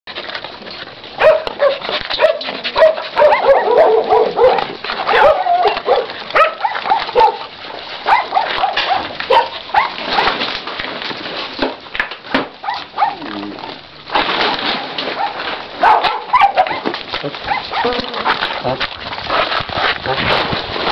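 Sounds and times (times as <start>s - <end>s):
dogs whining and yelping: 0.5s - 10.4s, 12.6s - 13.3s, 15.0s - 18.6s.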